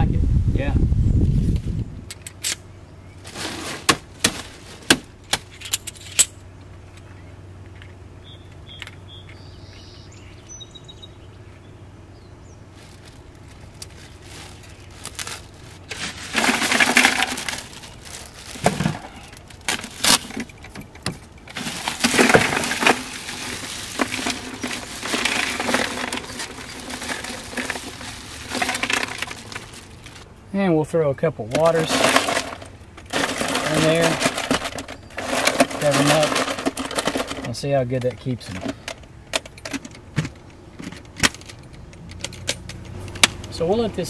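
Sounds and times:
plastic bag rustling: 3.2s - 5.1s, 12.7s - 30.3s, 31.6s - 37.6s
ice cubes clattering on metal: 14.1s - 20.6s, 21.4s - 30.2s, 31.6s - 37.6s.

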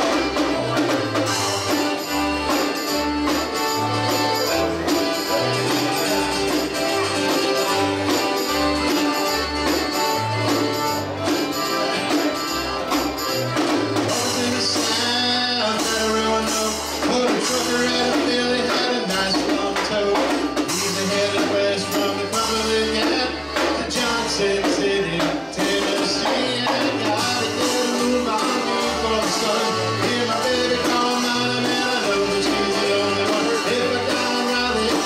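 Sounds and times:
accordions: 0.0s - 35.0s
acoustic guitar: 0.0s - 35.0s
bass line: 0.0s - 35.0s
steady drum beat: 0.0s - 35.0s
man singing: 14.0s - 35.0s.

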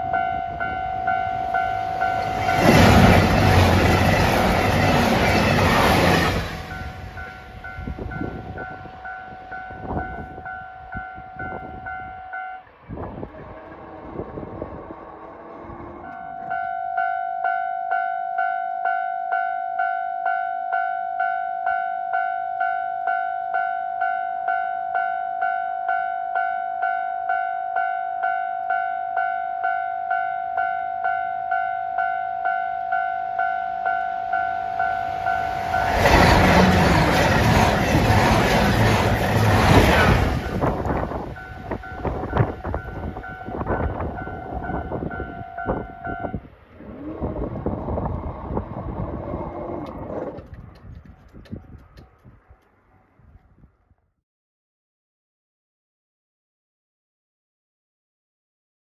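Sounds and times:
level crossing alarm ringing: 0.0s - 12.7s, 16.0s - 46.4s.

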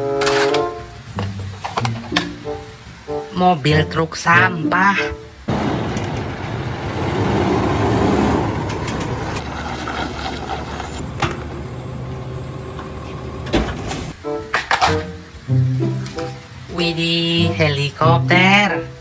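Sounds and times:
garbage truck diesel engine idling: 11.0s - 13.9s.

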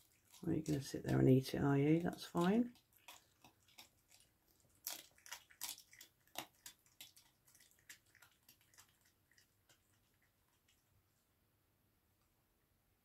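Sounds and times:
fox chewing raw meat: 0.0s - 11.2s
wet crunches and clicks: 2.0s - 10.8s.

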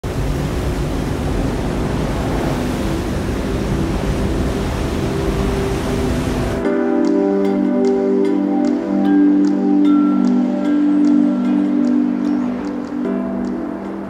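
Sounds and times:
wind rushing: 0.0s - 6.7s
sea water rushing: 0.0s - 14.0s
music with chiming bells: 6.6s - 14.0s.

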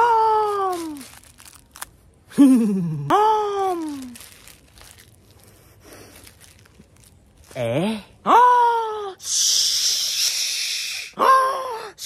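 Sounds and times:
man's exaggerated vocal cries: 0.0s - 1.2s, 2.3s - 4.2s, 11.2s - 12.0s
plastic bag crinkling: 0.1s - 2.2s, 3.4s - 7.7s.

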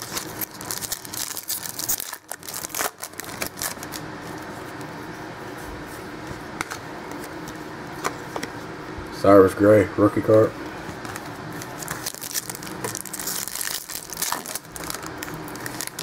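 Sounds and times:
foil wrapper crinkling and tearing: 0.0s - 4.0s, 11.1s - 16.0s.

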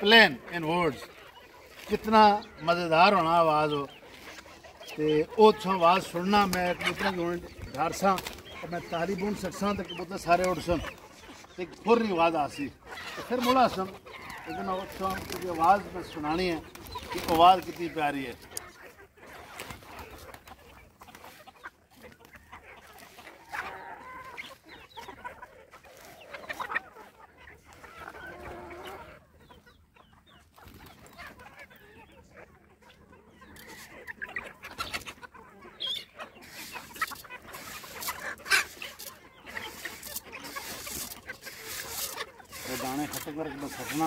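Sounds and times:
hens clucking: 0.0s - 44.0s.

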